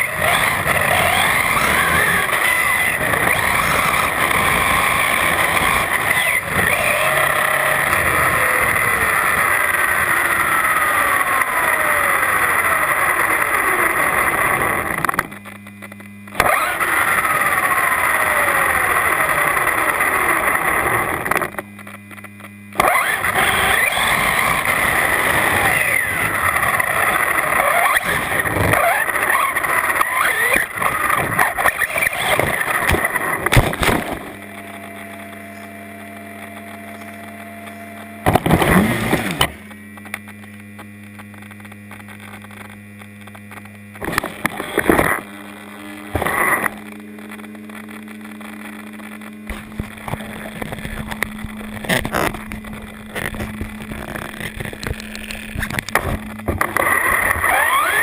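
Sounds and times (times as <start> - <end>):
electric motor whine: 0.0 - 58.0
steady low hum: 0.0 - 58.0
toy truck crashing: 22.8 - 26.3, 27.6 - 34.4.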